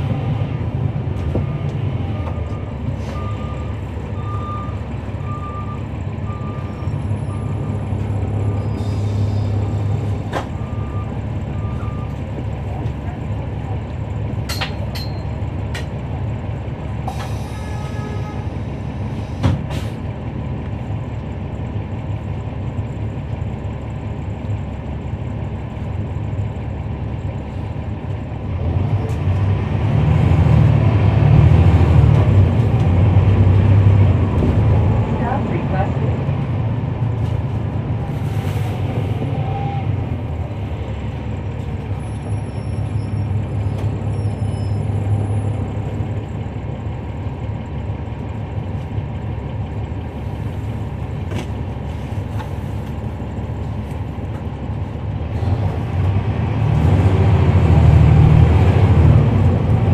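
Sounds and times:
bus diesel engine running: 0:00.0 - 0:59.9
thump: 0:19.4 - 0:19.7.

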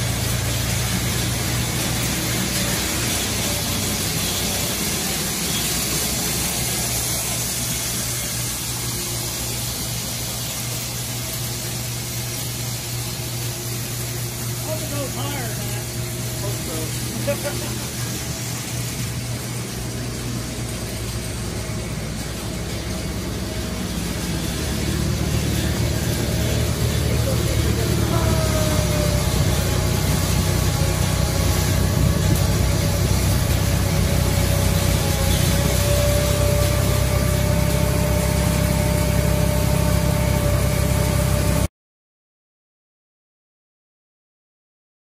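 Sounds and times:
tractor engine idling: 0:00.0 - 0:10.4, 0:14.6 - 0:41.7
thin steady whine: 0:00.0 - 0:41.7.

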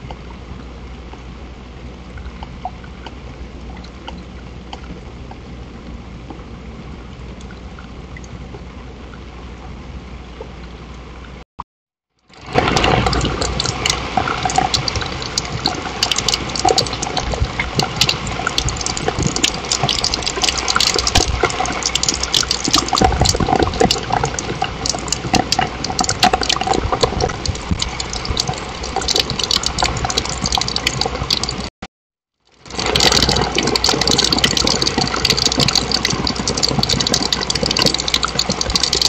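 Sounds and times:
rain falling on a patio: 0:12.3 - 0:31.7, 0:32.6 - 0:39.0
sharp drip taps: 0:13.4 - 0:31.6, 0:32.7 - 0:39.0.

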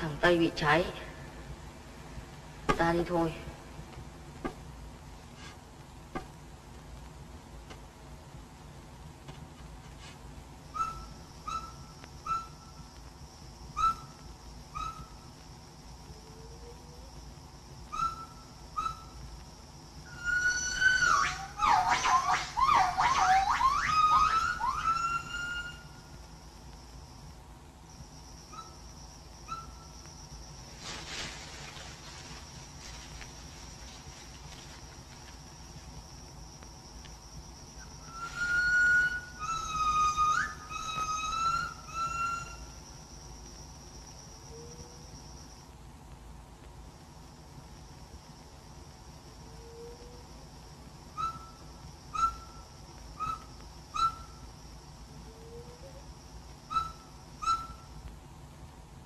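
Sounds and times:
steady hiss: 0:00.0 - 0:59.0
high insect-like drone: 0:09.9 - 0:45.8
held whistle-like note: 0:10.7 - 0:12.8, 0:17.9 - 0:19.2, 0:20.1 - 0:26.2, 0:37.9 - 0:42.8
short whistled bird-like calls: 0:10.7 - 0:12.8, 0:13.8 - 0:15.2, 0:17.9 - 0:19.2, 0:51.2 - 0:54.4, 0:56.7 - 0:57.9.

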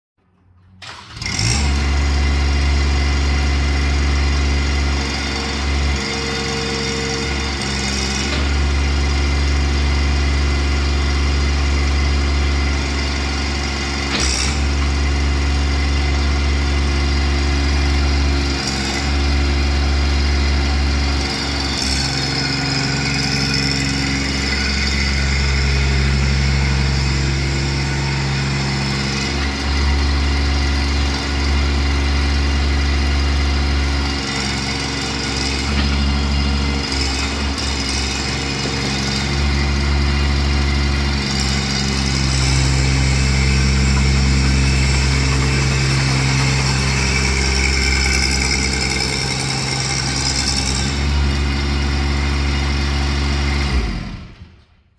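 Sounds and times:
excavator engine running: 0:00.2 - 0:54.6
hydraulics working: 0:04.2 - 0:54.5.

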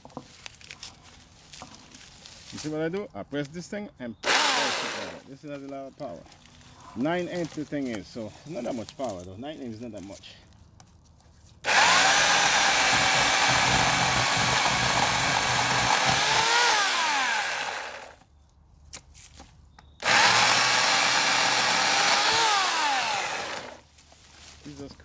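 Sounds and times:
electric chainsaw cutting wood: 0:04.2 - 0:05.3, 0:11.6 - 0:18.2, 0:20.0 - 0:23.8.

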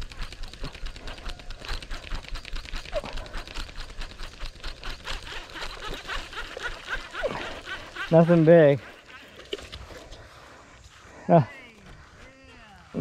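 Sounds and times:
fishing reel clicking: 0:00.0 - 0:09.9.

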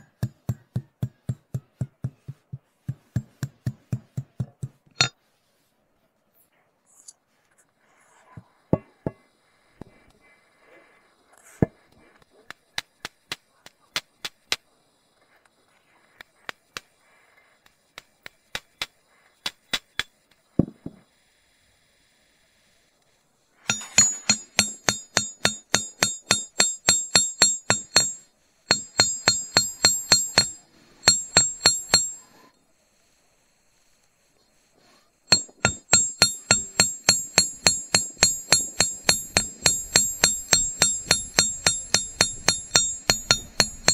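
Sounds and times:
hammer tapping metal: 0:00.0 - 0:05.2, 0:08.8 - 0:09.2, 0:23.7 - 0:32.5, 0:35.3 - 0:43.9.

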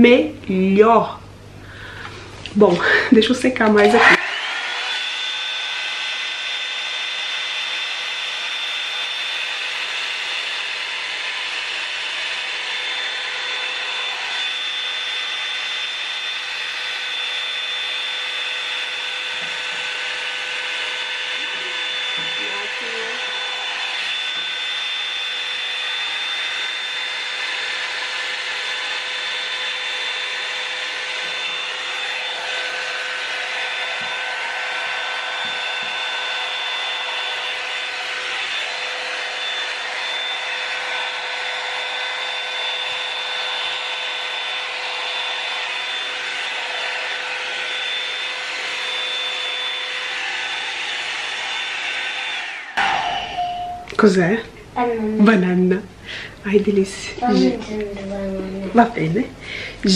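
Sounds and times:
hot-air dryer brush running: 0:00.0 - 0:59.9.

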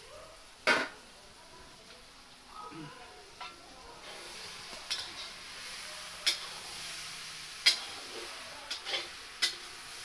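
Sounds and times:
curry sizzling in wok: 0:00.0 - 0:10.0.

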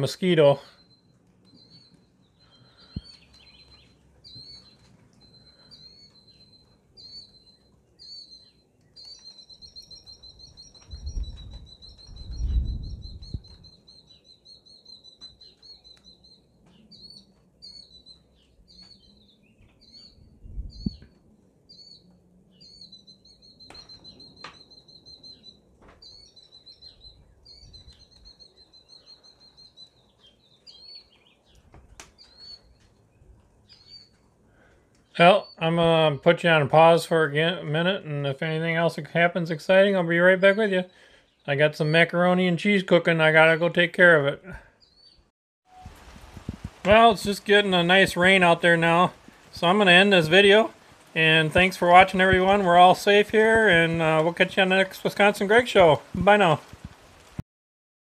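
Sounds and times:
killdeer calling: 0:00.0 - 0:32.8.

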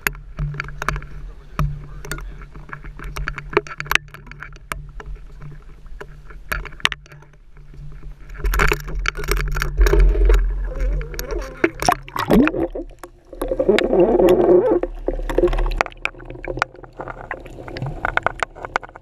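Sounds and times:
knocks and clicks of handled camera: 0:00.0 - 0:12.4
water rushing and splashing: 0:08.2 - 0:19.0
boat engine humming: 0:09.6 - 0:19.0.

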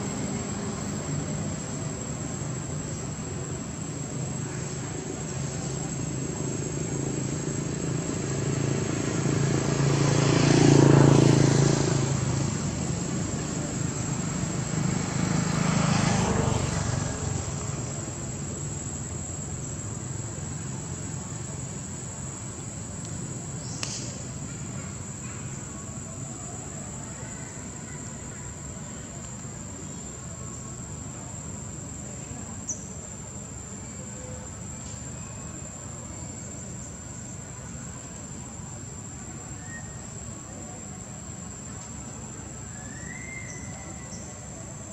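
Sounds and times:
passing vehicle engine hum: 0:00.0 - 0:33.6.

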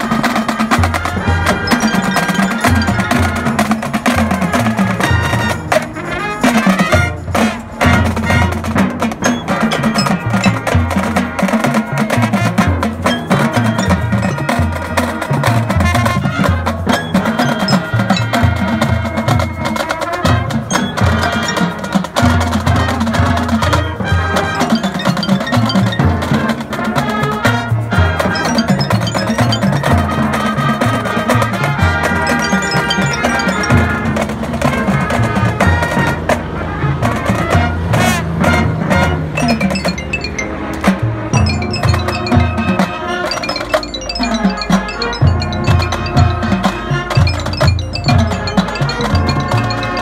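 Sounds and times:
bell-like mallet tones: 0:00.0 - 0:35.9, 0:39.3 - 0:50.0
brass chords: 0:00.0 - 0:50.0
marching drums: 0:00.0 - 0:50.0.

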